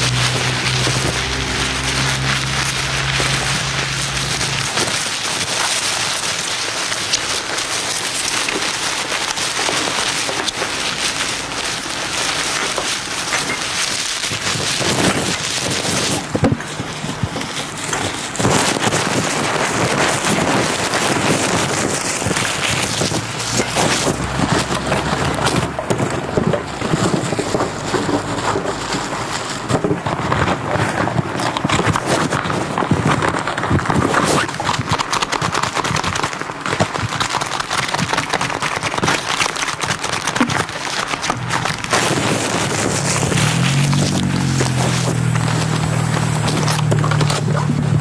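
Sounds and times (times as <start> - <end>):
packaging and paper crumpling: 0.0 - 48.0.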